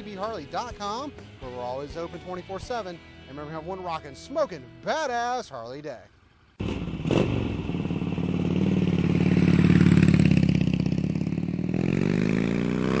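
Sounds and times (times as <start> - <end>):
motorcycle engine revving: 6.6 - 13.0.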